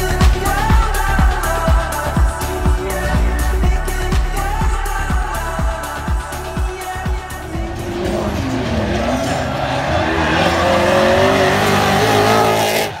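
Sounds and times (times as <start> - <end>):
music beat with deep thumps: 0.0 - 9.0
car engine revving: 7.1 - 13.0.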